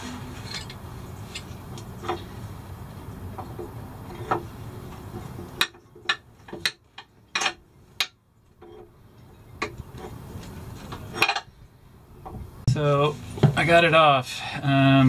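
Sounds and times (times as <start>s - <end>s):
metal tool clinking on metal housing: 0.4s - 2.2s.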